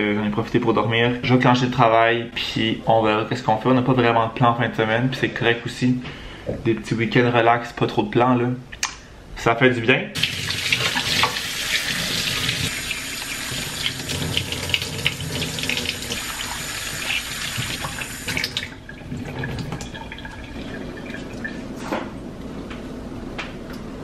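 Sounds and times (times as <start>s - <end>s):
faucet water splashing into trays: 10.2s - 21.6s.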